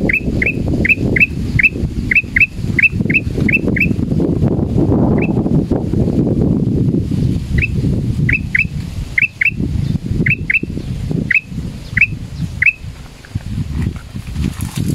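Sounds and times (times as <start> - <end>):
bird whistling sharp notes: 0.1 - 4.0, 5.2 - 5.4, 7.6 - 9.6, 10.2 - 12.9.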